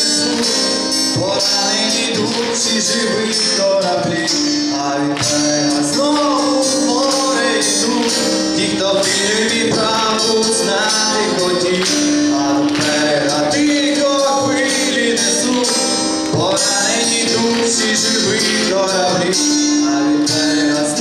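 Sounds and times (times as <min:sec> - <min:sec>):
acoustic guitar: 0:00.0 - 0:21.0
man singing: 0:00.0 - 0:21.0
steady percussion: 0:00.0 - 0:21.0.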